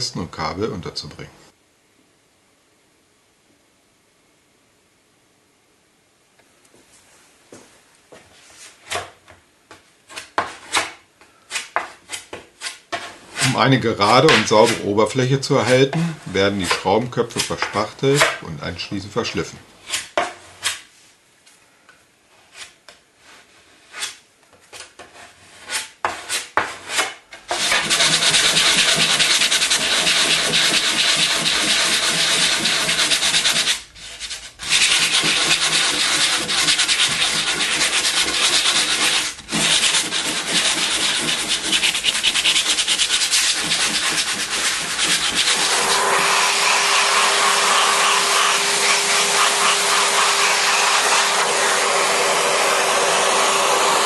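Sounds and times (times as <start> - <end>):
putty knife scraping and tapping: 10.1 - 13.5, 23.9 - 33.7
vacuum cleaner humming: 16.0 - 16.3, 45.2 - 54.0
power sander running: 45.4 - 54.0.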